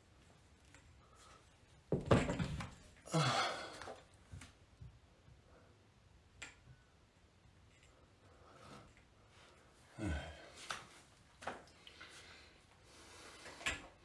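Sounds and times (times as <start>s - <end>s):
man breathing out hard: 3.1s - 3.9s, 9.9s - 10.7s.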